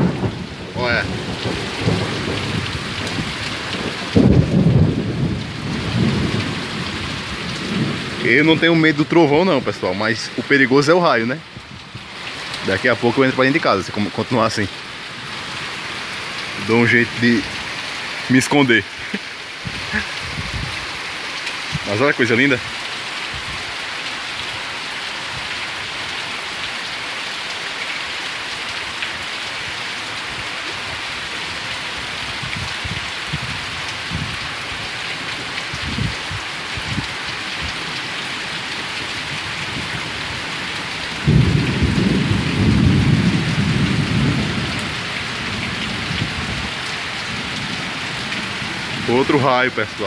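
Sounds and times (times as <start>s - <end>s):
thunder rumble: 0.0s - 8.3s, 41.2s - 47.8s
heavy rain pouring: 0.0s - 50.0s.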